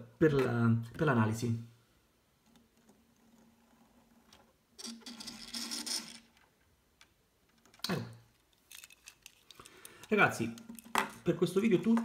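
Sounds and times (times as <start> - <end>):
plastic chain rattling and scraping: 3.2 - 6.5, 7.6 - 11.2
plastic toy wheels rolling: 3.2 - 6.6.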